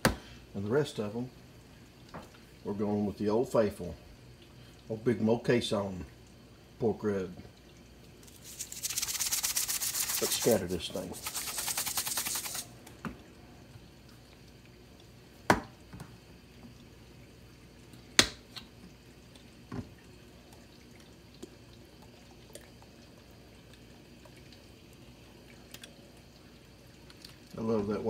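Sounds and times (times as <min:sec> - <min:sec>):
shaking rub: 0:08.2 - 0:12.7.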